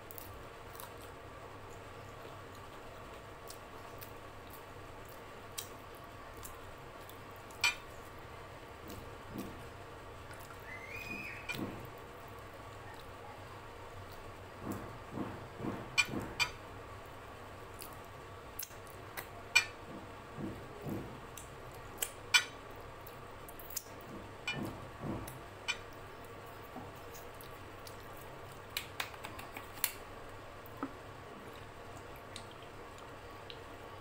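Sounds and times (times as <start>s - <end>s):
wet chewing: 23.0s - 30.0s, 30.6s - 33.7s
lip smacks and finger-licking: 28.7s - 30.0s, 31.6s - 33.6s.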